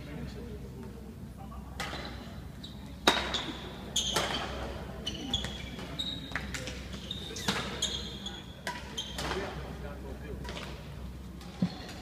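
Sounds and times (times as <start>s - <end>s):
shoes squeaking on court floor: 1.9s - 9.6s.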